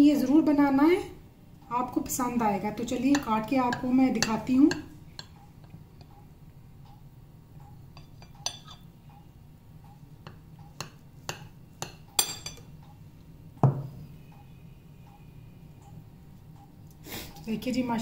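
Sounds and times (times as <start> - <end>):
knife clinking on ceramic plate: 8.0 - 8.9, 10.8 - 12.7
dull knock: 13.6 - 14.0.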